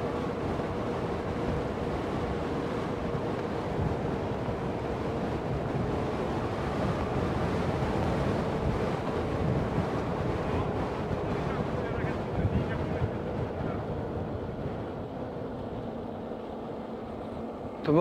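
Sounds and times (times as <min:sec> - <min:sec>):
faint steady whine: 0:00.0 - 0:18.0
wind rushing over microphone: 0:00.0 - 0:18.0.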